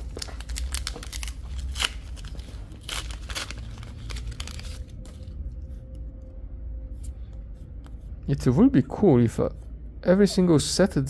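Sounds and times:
cards rustling and scraping: 0.0s - 6.0s.

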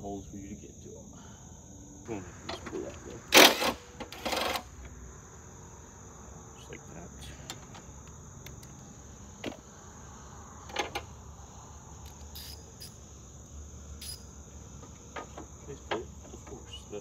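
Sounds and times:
high-pitched insect chorus: 0.0s - 17.0s.

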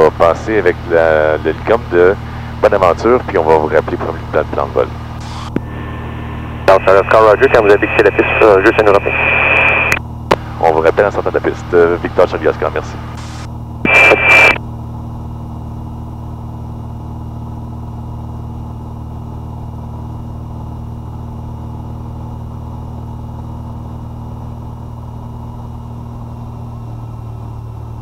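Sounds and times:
aircraft engine droning: 0.0s - 28.0s
loud noise burst with high tone: 5.2s - 10.0s, 13.1s - 14.6s.

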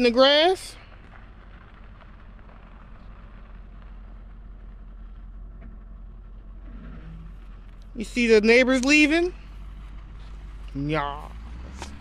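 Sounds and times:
car engine running: 0.0s - 12.0s.

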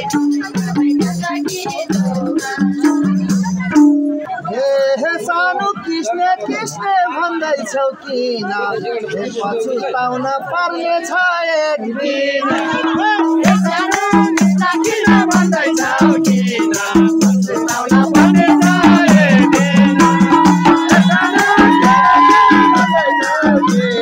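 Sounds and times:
rhythmic percussion strokes: 0.0s - 4.8s, 12.4s - 24.0s
people singing folk song: 0.0s - 9.4s, 10.1s - 24.0s.

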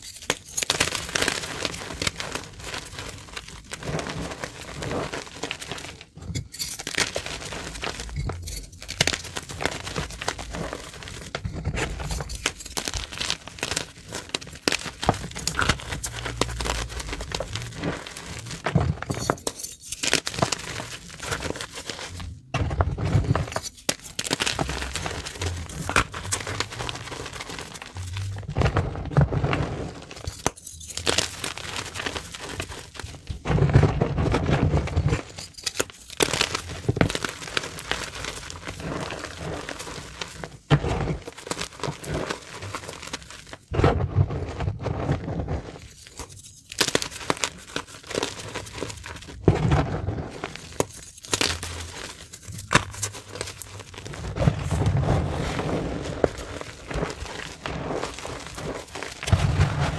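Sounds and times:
chalk crunching and crackling: 0.0s - 59.9s
soft dull thuds in powder: 54.3s - 59.9s.

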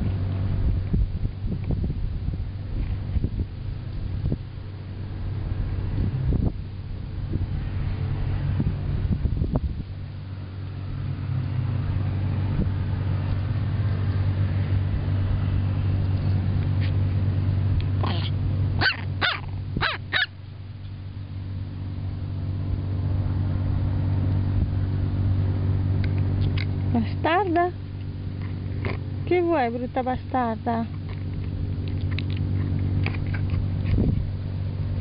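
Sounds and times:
low engine hum: 0.0s - 35.0s
puppy yipping: 18.0s - 20.4s.

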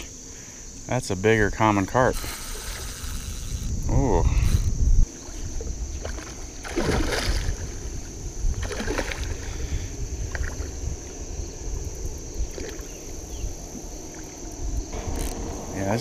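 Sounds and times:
fish splashing at water surface: 6.0s - 7.8s.

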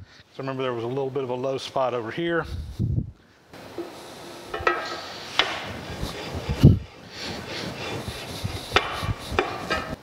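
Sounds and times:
metal sliding on metal: 3.6s - 10.0s
metal clunk: 4.5s - 5.7s.

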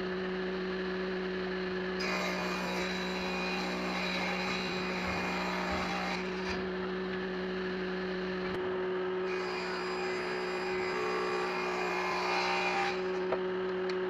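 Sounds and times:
table saw motor hum: 0.0s - 14.0s
saw blade ripping wooden board: 2.0s - 6.6s.

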